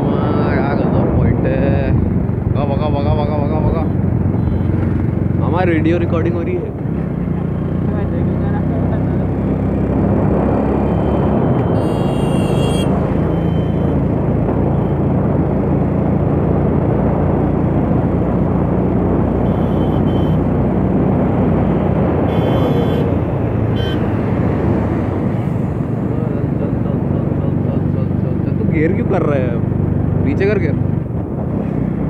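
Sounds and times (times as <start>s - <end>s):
wind rush on microphone: 0.0s - 5.4s, 13.9s - 19.6s, 28.6s - 32.0s.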